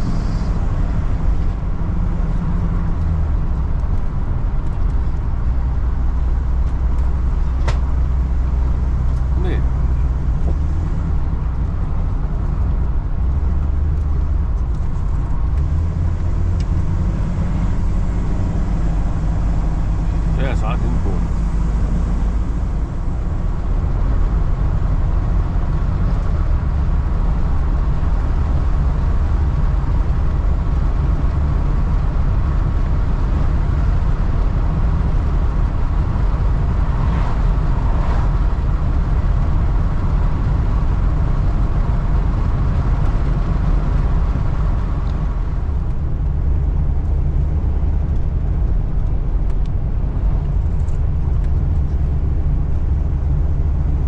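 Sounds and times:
engine and road noise rumble: 0.0 - 54.0.

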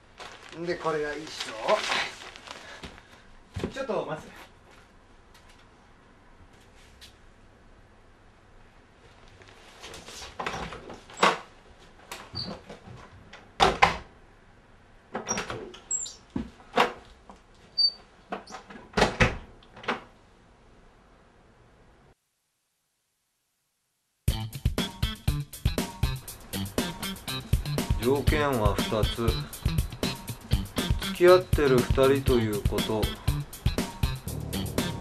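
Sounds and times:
door opening and shutting: 10.4 - 11.4, 12.2 - 12.8, 15.2 - 17.0, 17.8 - 20.1
door squeaks: 12.3 - 12.6, 15.2 - 16.2, 17.8 - 18.7
guitar-led music with steady beat: 24.3 - 35.0.

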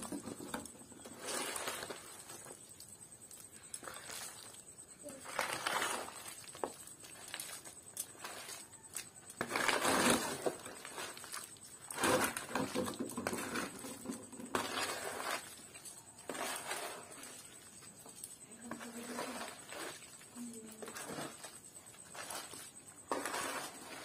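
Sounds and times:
metal spoon scraping bamboo tray: 22.0 - 24.0.

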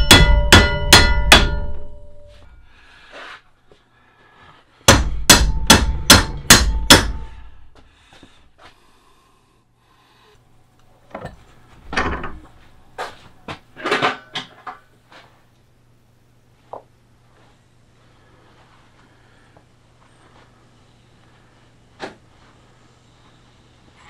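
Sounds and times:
hammer striking steel rod: 0.0 - 2.5, 4.9 - 7.6.

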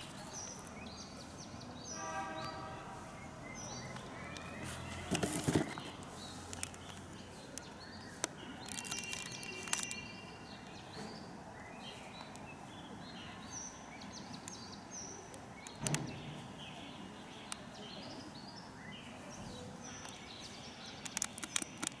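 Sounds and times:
small birds chirping: 0.0 - 22.0
sharp clicks: 21.0 - 22.0.

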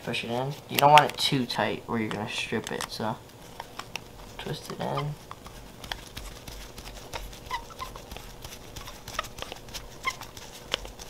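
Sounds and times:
short squeaks: 7.4 - 8.0, 9.9 - 10.3.

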